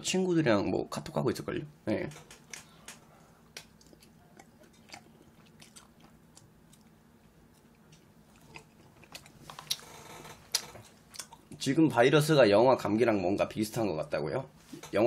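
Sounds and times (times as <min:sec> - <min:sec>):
wet chewing and slurping: 0:03.4 - 0:11.6.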